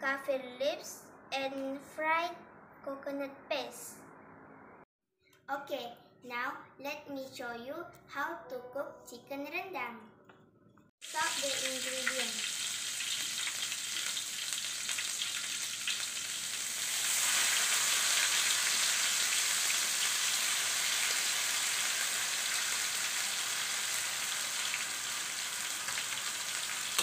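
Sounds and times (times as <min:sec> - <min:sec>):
paste sizzling in hot oil: 0:11.0 - 0:27.0.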